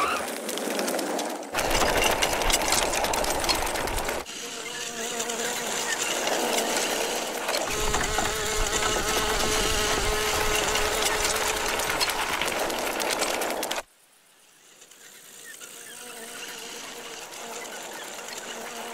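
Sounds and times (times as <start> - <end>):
small vehicles speeding: 0.0 - 13.8
fly buzzing: 3.0 - 13.8, 15.0 - 18.9.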